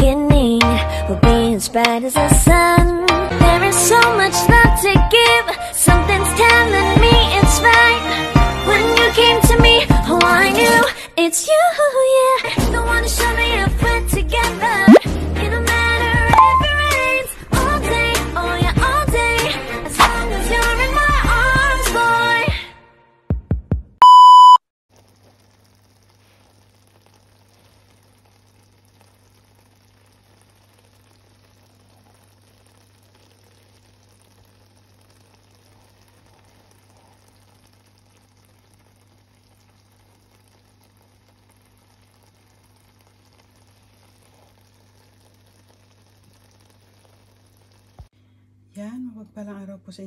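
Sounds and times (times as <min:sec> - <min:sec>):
electronic beep: 0:16.4 - 0:16.8, 0:24.0 - 0:24.6.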